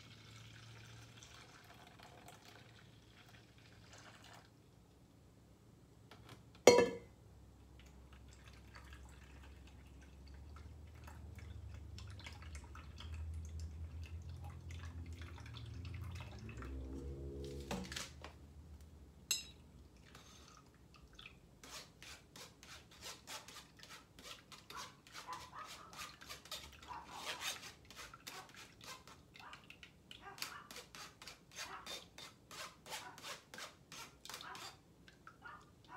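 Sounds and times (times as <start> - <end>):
metal bowls clanking: 6.7 - 7.1
metallic ring: 6.7 - 7.1
spoon scraping metal strainer: 21.6 - 29.2.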